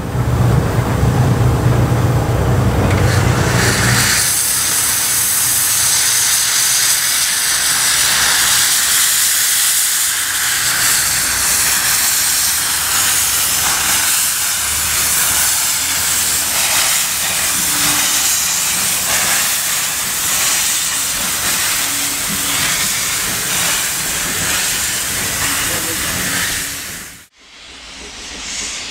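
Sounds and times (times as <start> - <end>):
steam locomotive hissing: 0.0 - 28.9.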